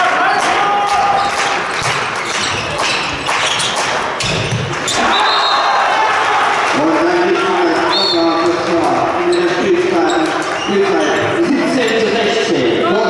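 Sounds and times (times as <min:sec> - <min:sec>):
voices echoing in a hall: 0:00.0 - 0:13.0
ball bouncing on court floor: 0:01.7 - 0:05.0.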